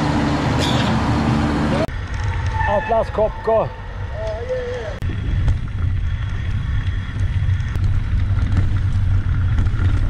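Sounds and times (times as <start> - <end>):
wind buffeting microphone: 4.0 - 10.0
bike tyres on loose gravel: 4.5 - 10.0.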